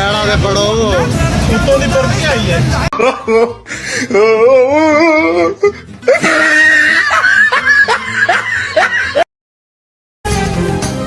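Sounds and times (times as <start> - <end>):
music: 0.0 - 9.2, 10.2 - 11.0
people laughing: 3.0 - 3.6, 6.1 - 9.2.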